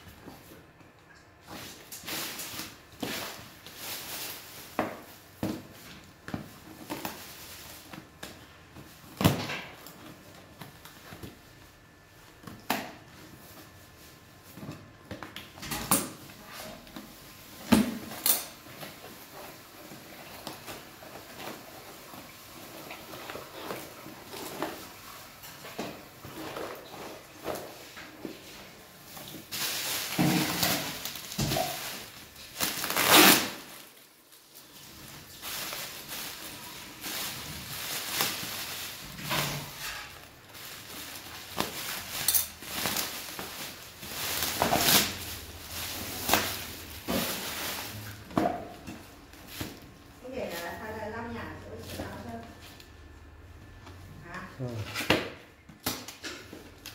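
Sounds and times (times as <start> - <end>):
cardboard and paper rustling: 16.1 - 52.8
scissors cutting packing tape: 32.6 - 33.6.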